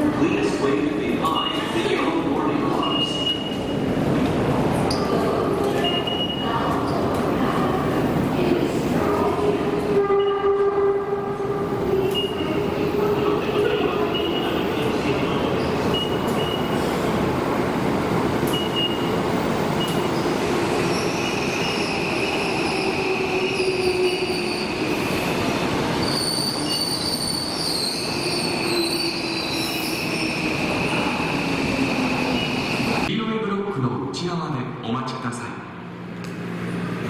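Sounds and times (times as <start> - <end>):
subway train rumble: 0.0 - 33.8, 34.4 - 37.0
train wheels squealing: 20.9 - 25.2, 26.0 - 33.0.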